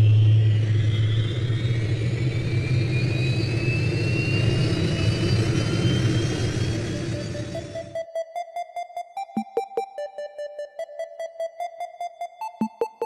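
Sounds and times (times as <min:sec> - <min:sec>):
high whine rising in pitch: 0:00.0 - 0:08.0.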